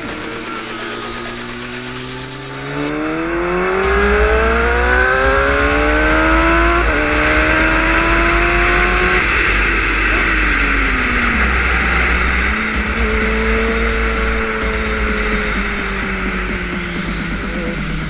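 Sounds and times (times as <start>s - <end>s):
motorbike engine accelerating: 0.0s - 18.0s.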